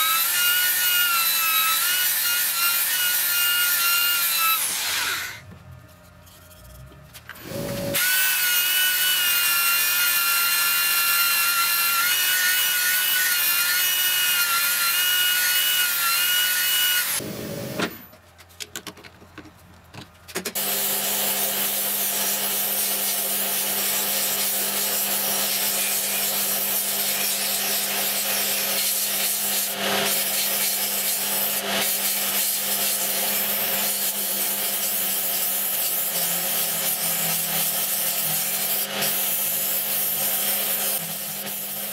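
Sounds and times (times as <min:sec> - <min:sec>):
wood sanding against disc: 0:22.2 - 0:41.9.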